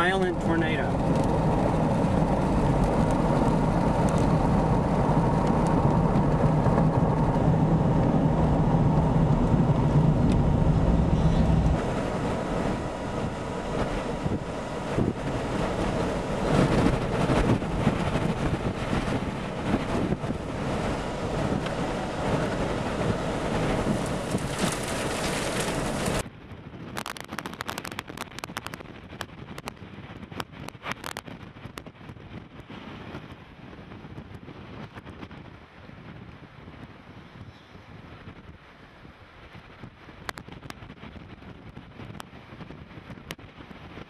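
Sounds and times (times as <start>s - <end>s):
cooling fans rushing: 0.0s - 26.2s
road and engine rumble: 0.0s - 44.0s.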